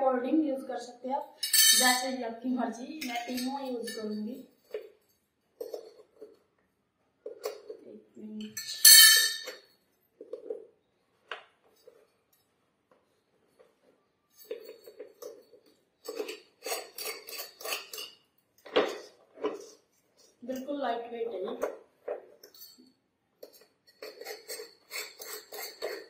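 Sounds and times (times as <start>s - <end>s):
metal rods clinking and scraping: 1.4s - 2.2s, 3.0s - 6.4s, 8.4s - 10.6s, 13.5s - 20.7s, 22.0s - 26.0s.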